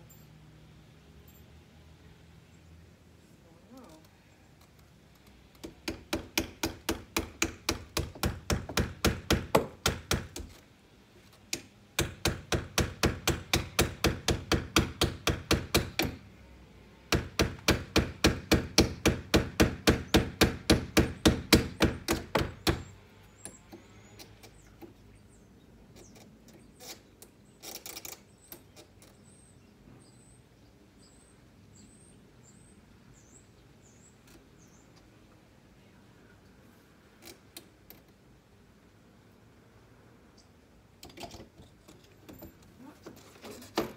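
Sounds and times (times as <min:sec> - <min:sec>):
hammer driving nails: 0:05.5 - 0:10.6, 0:11.5 - 0:16.2, 0:17.1 - 0:24.6.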